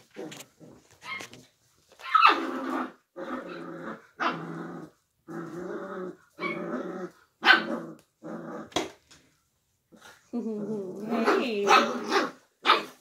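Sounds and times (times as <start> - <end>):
puppies play-growling: 0.0 - 9.0, 9.9 - 13.0
puppy yips: 2.0 - 2.4.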